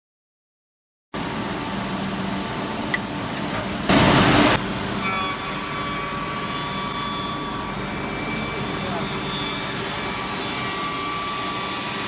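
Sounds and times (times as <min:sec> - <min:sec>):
steady machine whine: 0:01.2 - 0:12.0
shaper machine running: 0:03.8 - 0:12.0
loud burst of machine noise: 0:03.9 - 0:12.0.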